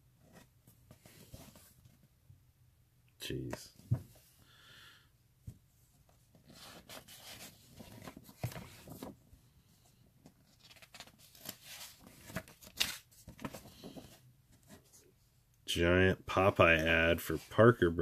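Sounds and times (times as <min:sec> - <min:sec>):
paper rustling: 0:06.4 - 0:09.2, 0:10.3 - 0:15.0
paper crinkling: 0:06.5 - 0:09.2, 0:10.4 - 0:14.0.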